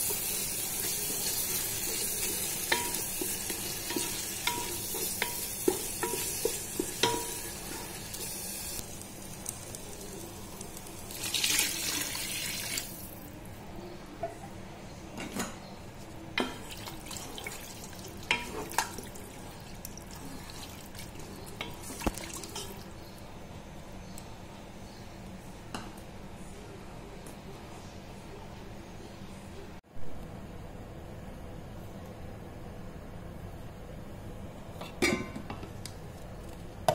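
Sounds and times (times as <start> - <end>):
masala sizzling in a pan: 0.0 - 13.2, 16.0 - 23.2
spoon knocking against pot: 2.7 - 7.5.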